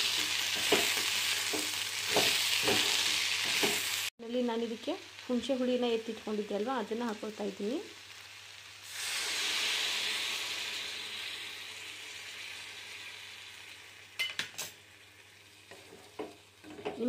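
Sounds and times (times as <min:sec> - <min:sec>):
liquid sizzling in hot pan: 0:00.0 - 0:17.0
utensils clinking on pan: 0:14.2 - 0:14.7.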